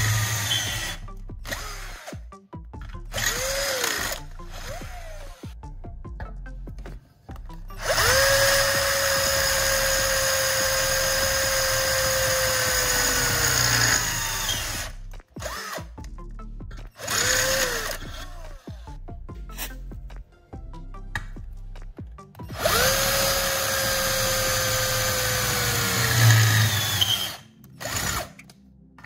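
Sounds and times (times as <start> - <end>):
electric drill running: 0.0 - 2.3, 3.1 - 5.6, 7.8 - 15.9, 17.0 - 18.8, 22.5 - 28.3.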